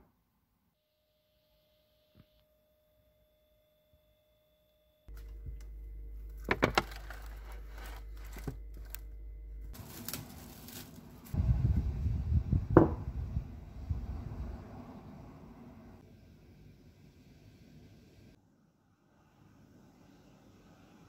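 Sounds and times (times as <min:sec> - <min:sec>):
refrigerator hum: 0:05.1 - 0:13.0
low handling knocks: 0:12.7 - 0:13.2.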